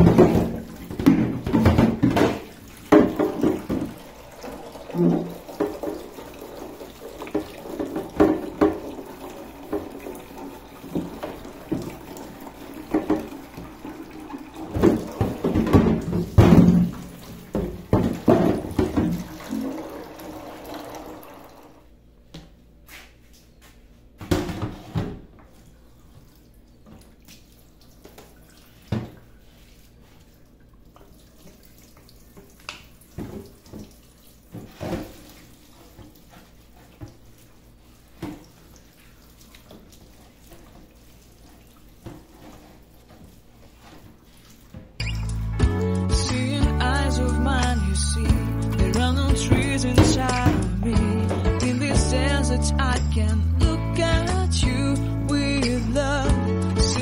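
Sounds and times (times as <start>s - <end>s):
plastic drawer knocking in sink: 0.0s - 4.0s, 12.9s - 13.4s, 14.7s - 19.7s.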